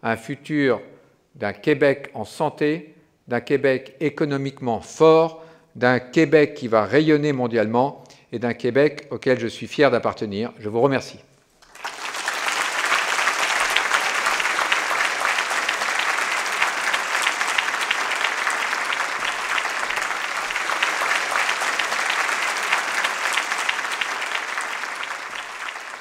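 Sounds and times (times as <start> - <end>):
large audience applauding: 11.6 - 26.0.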